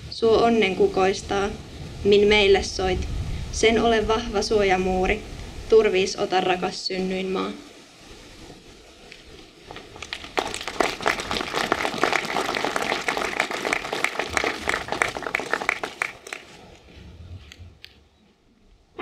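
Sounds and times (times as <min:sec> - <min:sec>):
audience applauding: 0:09.7 - 0:16.6.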